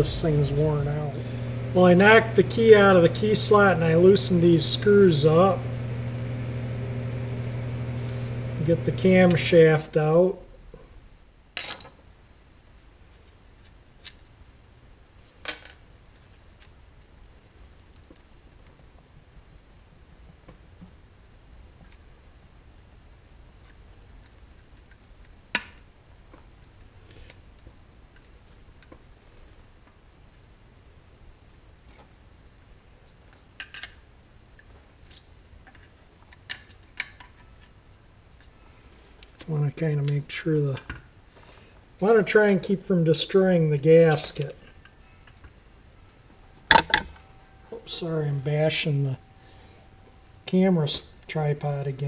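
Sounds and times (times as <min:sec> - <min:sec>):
low hum: 0:00.0 - 0:11.4, 0:42.0 - 0:52.0.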